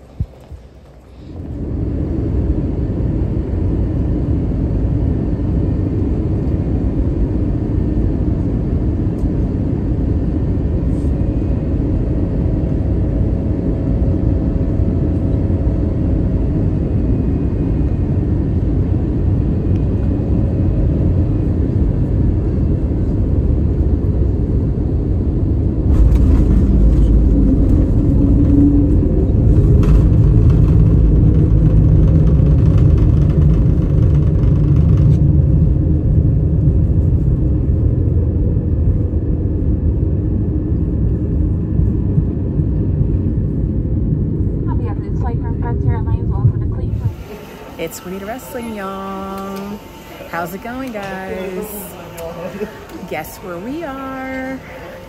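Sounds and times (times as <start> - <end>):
vehicle rumble: 0.0 - 55.0.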